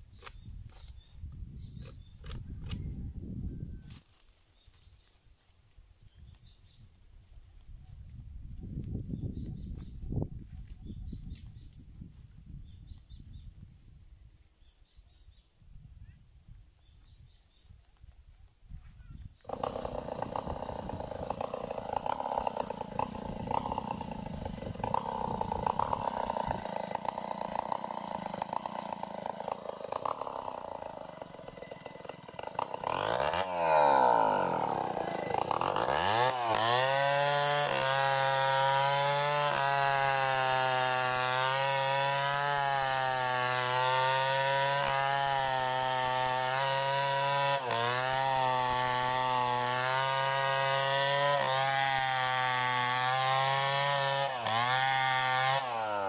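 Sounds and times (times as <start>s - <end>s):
chainsaw cutting wood: 0.0s - 2.8s, 19.4s - 56.0s.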